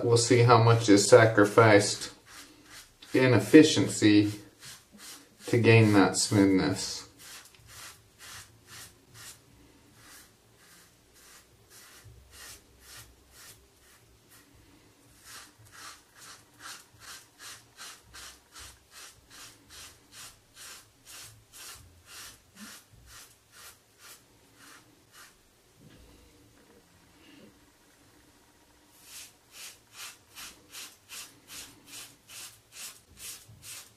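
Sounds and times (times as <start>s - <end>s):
razor scraping stubble: 1.2s - 9.4s, 10.0s - 14.4s, 15.2s - 25.4s.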